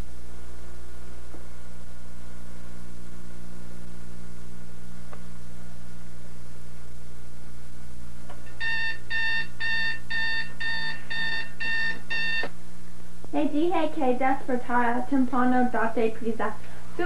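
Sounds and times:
steady low hum: 0.0s - 17.0s
alarm clock beeping: 8.5s - 12.5s.

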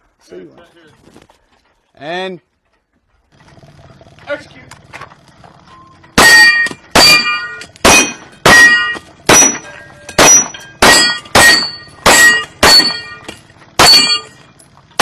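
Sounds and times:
pistol shots: 6.2s - 14.3s
steel plate target ringing: 6.2s - 14.6s.

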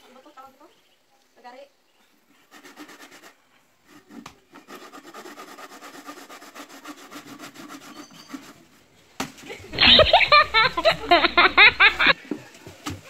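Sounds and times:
saw cutting wood: 2.5s - 8.6s.

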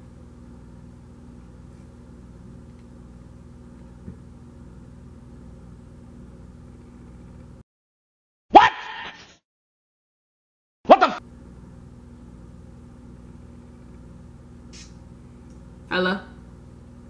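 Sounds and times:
steady low hum: 0.0s - 7.6s, 11.1s - 17.0s.

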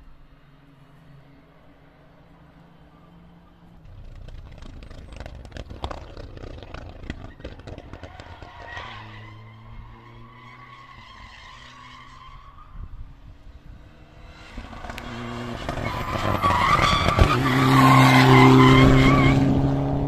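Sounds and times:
race car engine crackling: 3.8s - 9.6s
high tyre squeal: 6.4s - 13.1s, 14.4s - 19.7s.

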